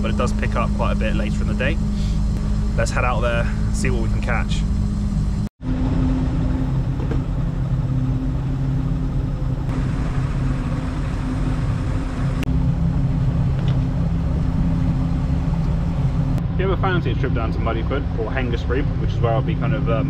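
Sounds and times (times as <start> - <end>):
motorboat engine humming: 0.0 - 20.0
wind: 0.0 - 20.0.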